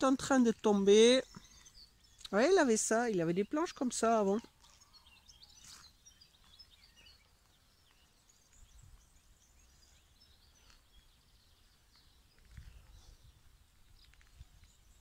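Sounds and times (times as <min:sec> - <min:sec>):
faint bird chirps: 0:01.1 - 0:02.5, 0:04.4 - 0:15.0.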